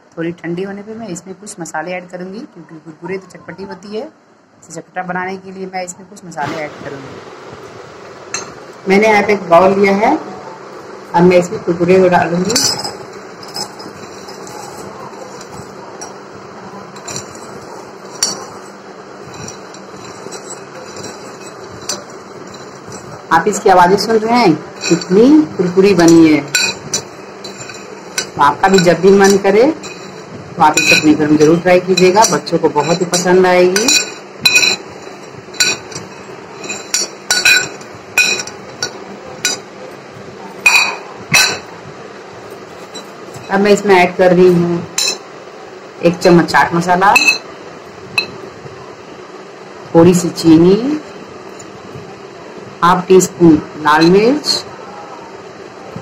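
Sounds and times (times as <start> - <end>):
steady low hum: 0.0 - 56.0
spoon clinking against glass: 12.5 - 16.2, 16.8 - 23.3, 24.8 - 39.7, 40.6 - 41.7, 44.9 - 45.3, 47.2 - 47.5, 48.2 - 48.4.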